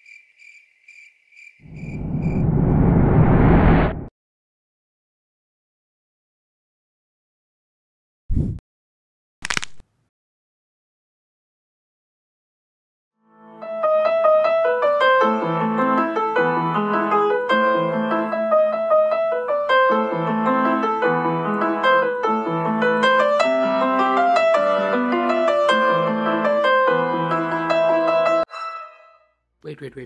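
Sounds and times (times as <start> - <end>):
piano music: 13.2 - 29.1.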